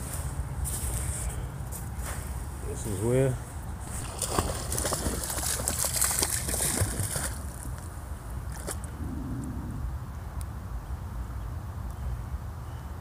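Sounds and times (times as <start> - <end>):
dog wading through water: 3.8 - 9.0.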